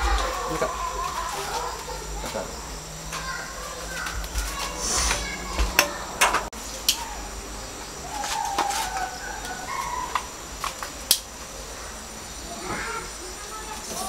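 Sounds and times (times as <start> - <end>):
sharp knocks and clicks: 4.0 - 6.5
faint bird calls: 6.8 - 14.0.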